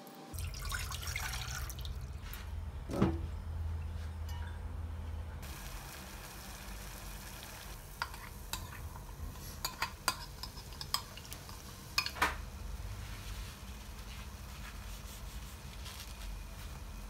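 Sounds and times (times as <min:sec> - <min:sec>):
water boiling in a pot: 0:00.4 - 0:02.2, 0:05.4 - 0:15.5.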